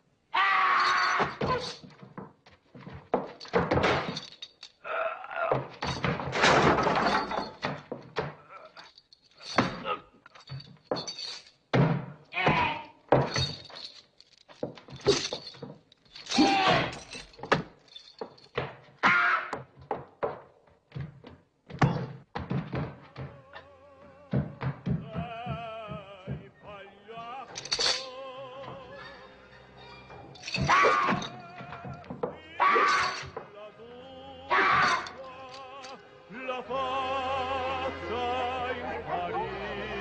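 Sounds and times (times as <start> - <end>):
glass breaking: 0.7 - 2.1, 3.1 - 4.8, 5.6 - 12.0, 13.1 - 18.7, 27.5 - 28.2, 30.3 - 33.5, 34.6 - 36.0
grunts and shouts: 4.8 - 5.8, 16.3 - 17.1, 34.5 - 35.2.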